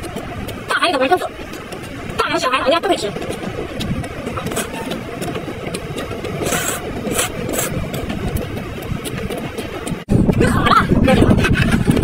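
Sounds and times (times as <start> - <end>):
steady low rumble: 0.0 - 12.0
slurping and crunchy chewing: 3.8 - 8.1.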